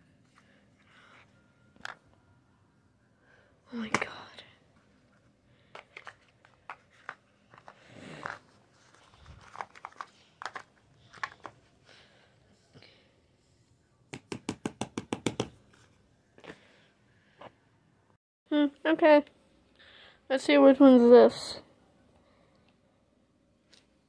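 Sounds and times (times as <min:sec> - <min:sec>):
paper rustling: 0:05.9 - 0:11.6.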